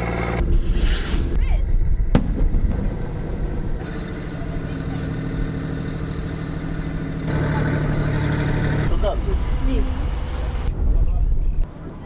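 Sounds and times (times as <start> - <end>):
boat engine humming: 2.1 - 10.7.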